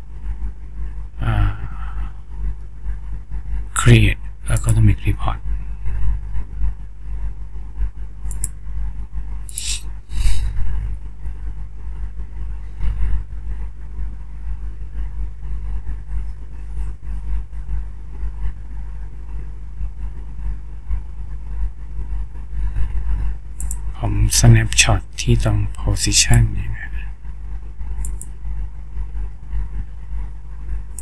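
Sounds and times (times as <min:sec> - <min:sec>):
low background rumble: 0:00.0 - 0:31.0
computer mouse clicks: 0:08.2 - 0:08.6, 0:09.5 - 0:09.8, 0:23.6 - 0:23.8, 0:28.0 - 0:28.3.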